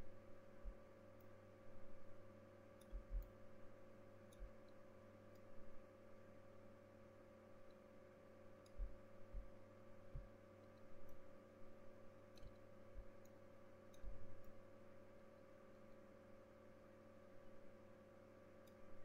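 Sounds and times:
electrical hum: 0:00.0 - 0:19.0
soft low thumps: 0:02.9 - 0:03.3, 0:08.8 - 0:10.4
faint clicks: 0:12.3 - 0:14.6.

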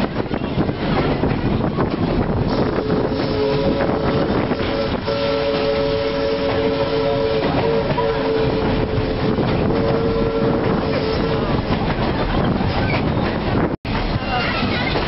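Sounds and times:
train rumbling on track: 0:00.0 - 0:15.0
steam locomotive whistle: 0:02.5 - 0:11.6.

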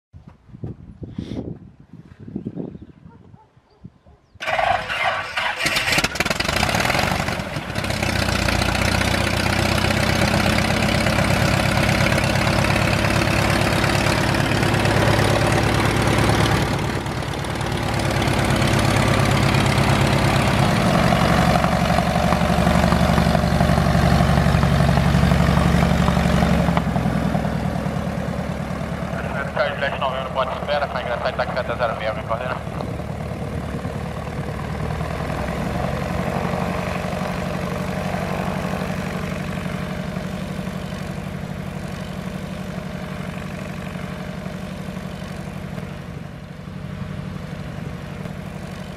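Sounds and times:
propeller plane engine idling: 0:04.4 - 0:48.9.

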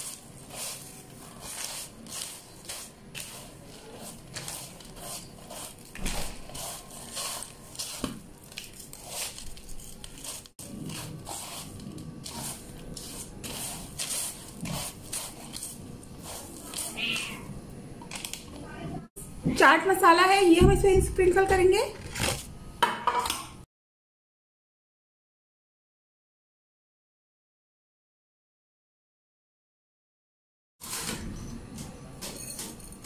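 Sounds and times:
snack mix rustling on paper: 0:00.0 - 0:17.3.

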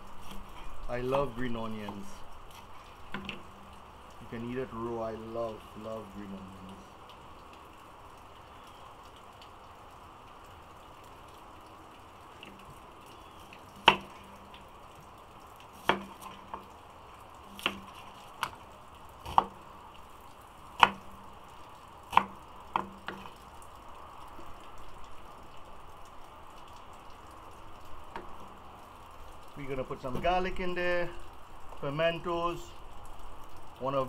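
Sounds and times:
faint steady background noise: 0:00.0 - 0:34.0.

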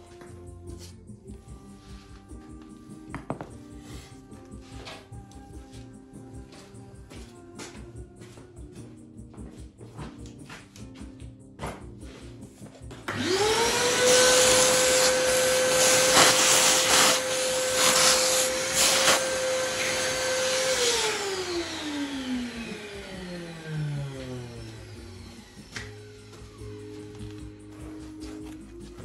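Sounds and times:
vacuum cleaner motor whine: 0:13.1 - 0:27.8.

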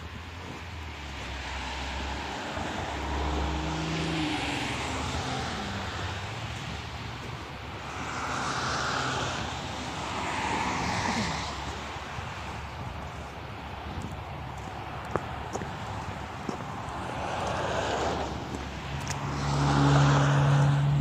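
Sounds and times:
car engine passing: 0:01.0 - 0:12.8, 0:14.8 - 0:21.0
tyre hiss on wet road: 0:07.8 - 0:12.6.

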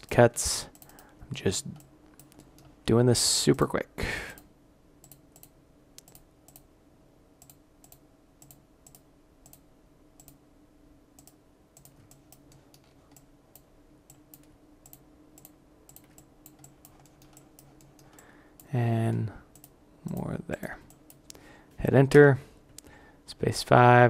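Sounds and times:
faint steady hum: 0:00.0 - 0:24.0
computer mouse clicking: 0:00.7 - 0:01.1, 0:01.7 - 0:02.8, 0:04.4 - 0:06.7, 0:07.4 - 0:09.6, 0:10.2 - 0:10.4, 0:11.2 - 0:18.7, 0:19.5 - 0:20.2.

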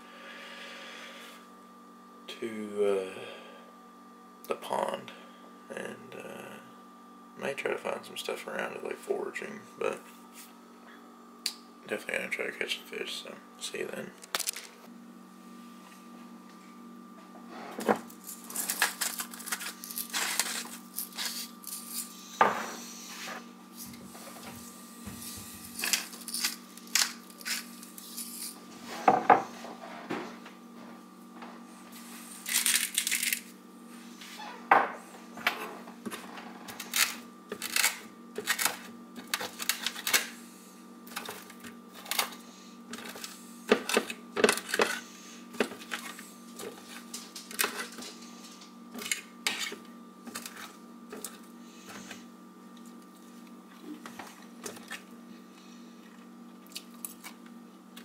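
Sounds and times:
faint steady hum: 0:00.0 - 0:58.0
plastic packaging crinkling: 0:18.2 - 0:22.1, 0:32.4 - 0:33.5.

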